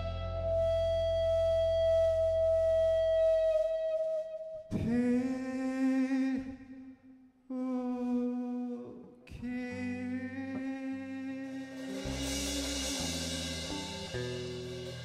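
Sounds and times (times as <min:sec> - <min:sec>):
rock band playing slow notes: 0:00.0 - 0:02.8, 0:11.3 - 0:15.0
bass notes: 0:00.0 - 0:04.0, 0:09.4 - 0:15.0.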